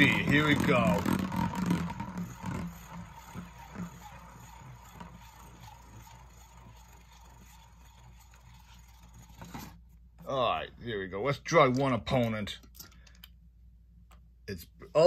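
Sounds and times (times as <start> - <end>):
spinning top whirring: 0.0 - 10.0.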